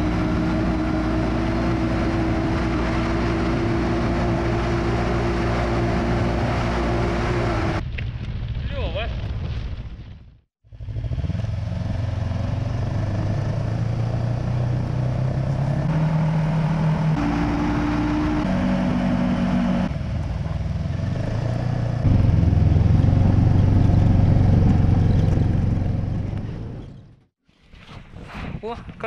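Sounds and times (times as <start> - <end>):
snowmobile engine running: 0.0 - 7.8, 21.8 - 26.8.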